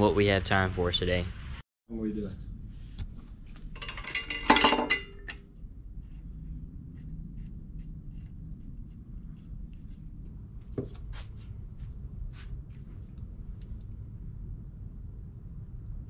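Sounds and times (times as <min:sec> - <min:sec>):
low steady hum: 0:00.0 - 0:16.0
metal scraping and clinking: 0:03.6 - 0:06.3.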